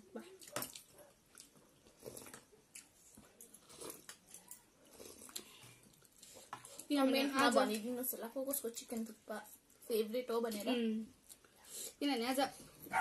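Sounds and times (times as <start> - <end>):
chewing and slurping noodles: 0.4 - 6.9.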